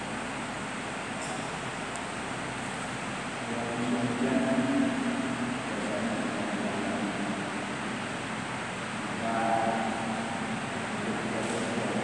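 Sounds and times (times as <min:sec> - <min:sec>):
man chanting through loudspeakers: 0:03.4 - 0:07.6, 0:09.1 - 0:12.0.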